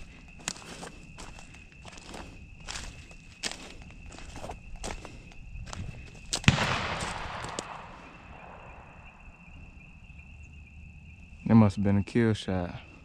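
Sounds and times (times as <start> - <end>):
shotgun blast: 6.4 - 8.8.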